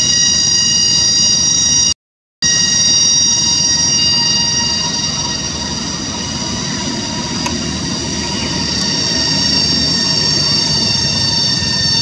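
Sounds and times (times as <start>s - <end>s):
cicadas droning: 2.4s - 12.0s.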